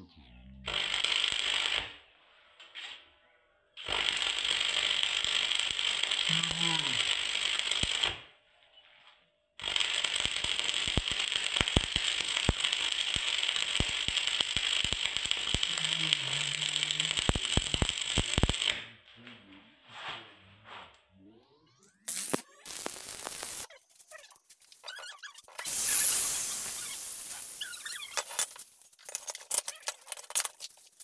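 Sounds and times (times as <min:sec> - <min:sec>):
welding arc crackling and hissing: 0:00.7 - 0:02.0, 0:03.8 - 0:08.2, 0:09.6 - 0:18.9, 0:22.0 - 0:31.0
sharp pops: 0:10.1 - 0:18.9, 0:22.0 - 0:28.6.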